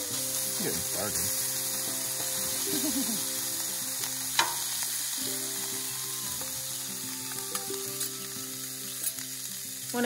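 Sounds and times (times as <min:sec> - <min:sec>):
background music: 0:00.0 - 0:10.0
food sizzling on a griddle: 0:00.0 - 0:10.0
metal spatula scraping and tapping: 0:04.4 - 0:04.7.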